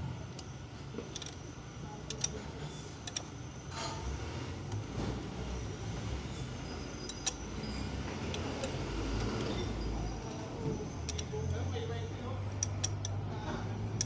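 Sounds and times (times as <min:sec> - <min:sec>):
light metallic clicks: 0:02.0 - 0:03.4, 0:07.0 - 0:09.7, 0:11.0 - 0:11.7, 0:12.4 - 0:14.0.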